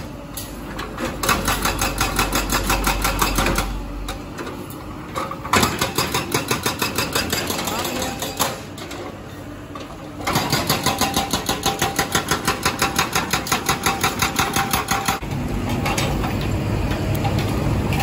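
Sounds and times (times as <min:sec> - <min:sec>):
hydraulic breaker hammering concrete: 0:01.2 - 0:03.7, 0:05.6 - 0:08.6, 0:10.2 - 0:15.2.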